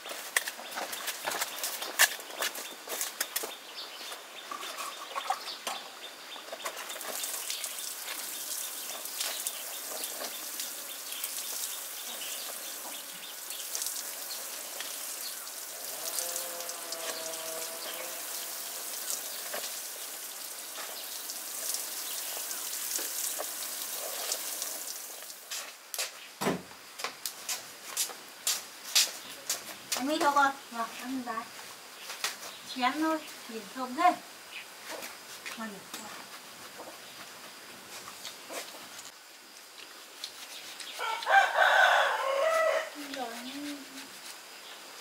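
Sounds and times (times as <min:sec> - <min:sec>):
birds chirping: 0:00.0 - 0:25.3
steady high hiss: 0:05.4 - 0:45.0.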